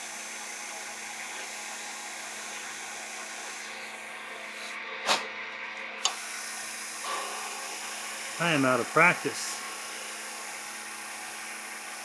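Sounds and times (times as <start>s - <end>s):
wood lathe humming: 0.0s - 4.6s, 6.0s - 12.0s
turning tool hissing on wood: 6.1s - 12.0s.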